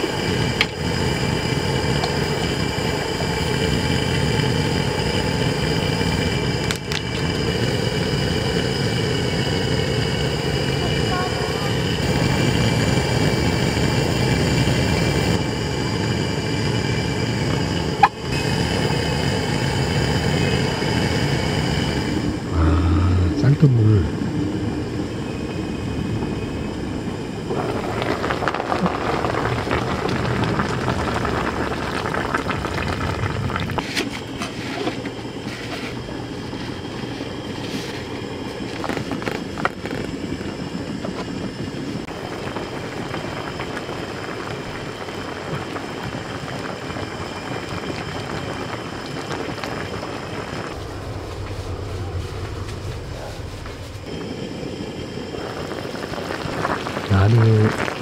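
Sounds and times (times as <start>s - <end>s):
pot boiling with bubbling hiss: 0.0s - 58.0s.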